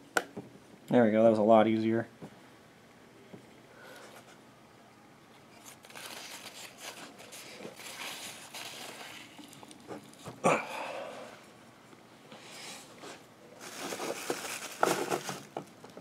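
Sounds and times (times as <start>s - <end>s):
soft rustling and scraping: 5.4s - 10.4s.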